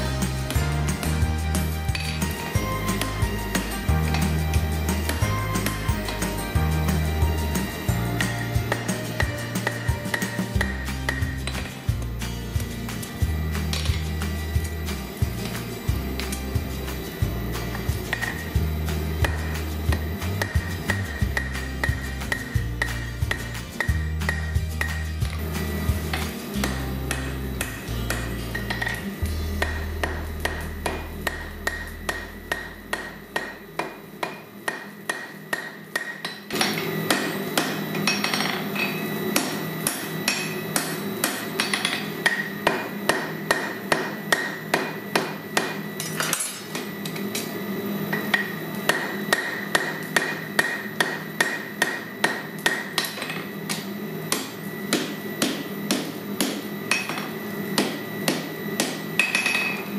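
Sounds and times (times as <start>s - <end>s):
hammer striking metal on anvil: 0.0s - 12.0s, 15.4s - 25.4s, 26.1s - 47.5s, 48.1s - 59.9s
anvil ringing: 26.6s - 46.8s, 58.8s - 59.9s.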